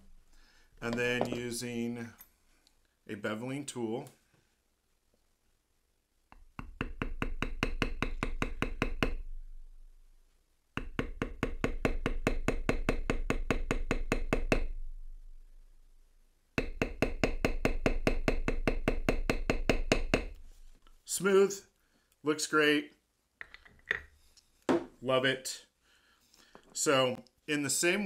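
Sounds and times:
mallet tapping metal tool: 0:06.4 - 0:09.2, 0:10.8 - 0:14.8, 0:16.6 - 0:20.4.

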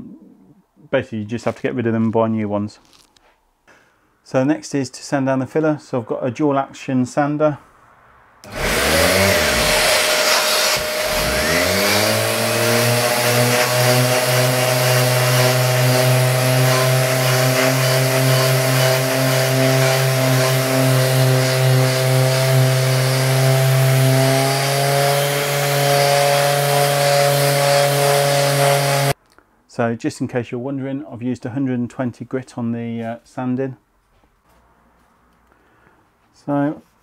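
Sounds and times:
dust extraction vacuum: 0:08.4 - 0:29.2
orbital sander running: 0:08.4 - 0:29.2.

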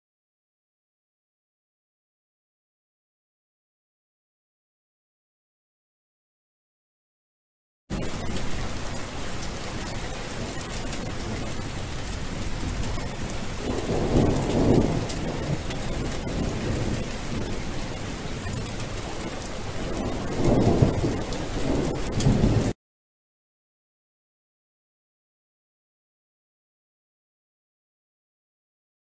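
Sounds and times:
steady rain: 0:07.9 - 0:22.8
thunder rolling: 0:07.9 - 0:22.8.

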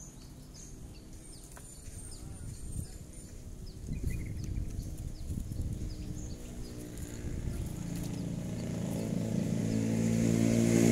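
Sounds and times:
small engine running: 0:03.0 - 0:10.9.

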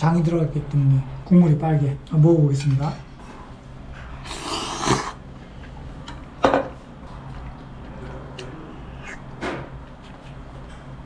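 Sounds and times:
slurping broth from spoon: 0:04.2 - 0:05.2
slurping noodles: 0:04.2 - 0:05.2.

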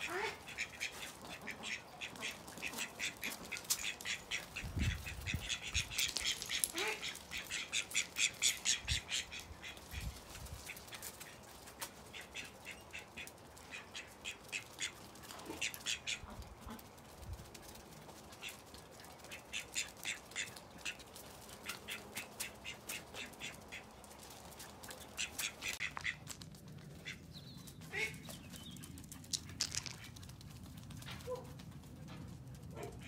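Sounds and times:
duck quacking: 0:00.0 - 0:10.1, 0:12.1 - 0:16.8, 0:21.6 - 0:24.0, 0:25.0 - 0:26.2, 0:27.9 - 0:28.2.

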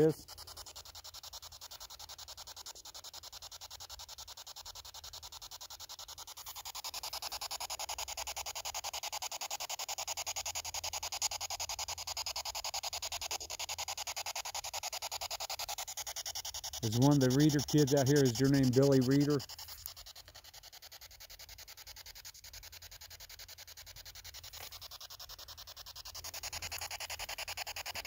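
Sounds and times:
pulsing radio static: 0:00.0 - 0:01.0, 0:15.0 - 0:20.6, 0:23.9 - 0:28.0.

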